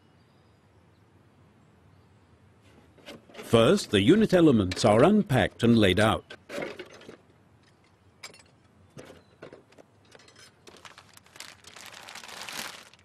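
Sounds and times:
plastic film crinkling: 10.6 - 13.0.

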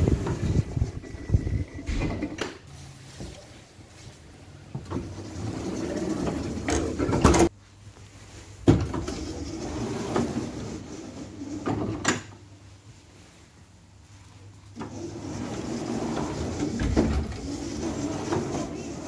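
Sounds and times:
tram doors closing and opening: 0.0 - 2.6, 4.7 - 7.5, 8.7 - 12.4, 14.8 - 19.0.

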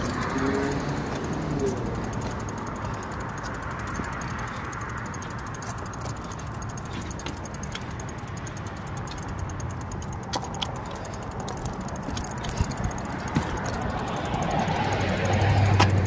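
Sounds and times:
bicycle ticking and rattling: 0.0 - 16.0
car driving up: 11.6 - 16.0.

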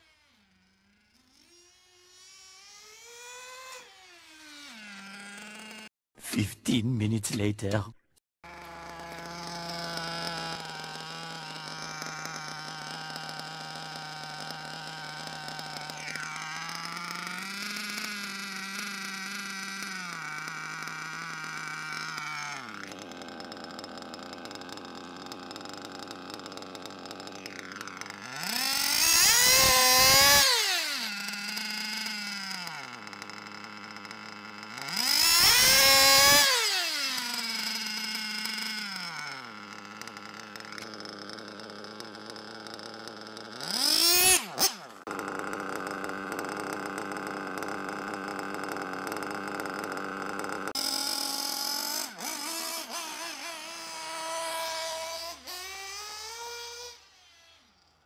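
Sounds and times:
small rc car engine revving: 0.0 - 6.4, 8.4 - 58.0.

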